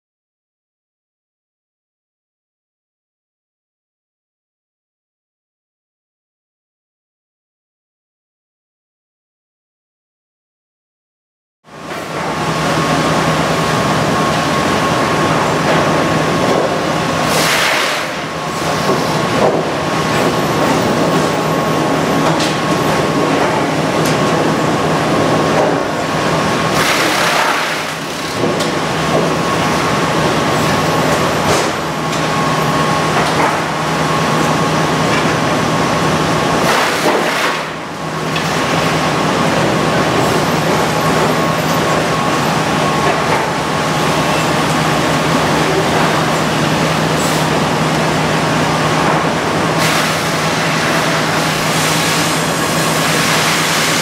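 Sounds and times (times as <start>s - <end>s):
constant machine hum: 11.7s - 54.0s
sawmill log carriage working: 11.7s - 54.0s.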